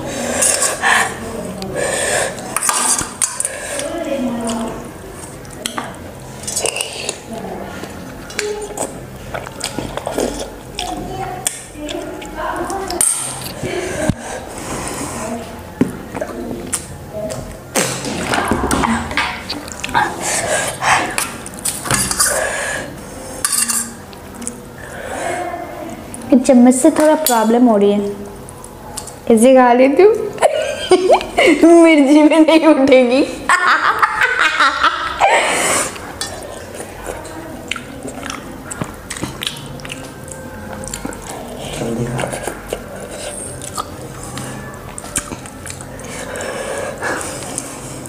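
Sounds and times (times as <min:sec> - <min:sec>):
mouth chewing: 0:00.4 - 0:22.5, 0:28.4 - 0:29.2, 0:35.7 - 0:48.0
metal spoon scraping a steel bowl: 0:23.4 - 0:24.0.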